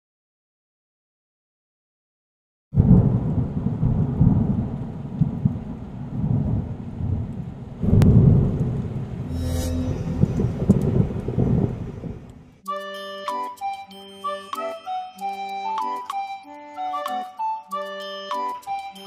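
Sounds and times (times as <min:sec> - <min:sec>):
rain: 0:02.8 - 0:09.3, 0:10.3 - 0:12.6
thunder rumbling: 0:02.8 - 0:12.6.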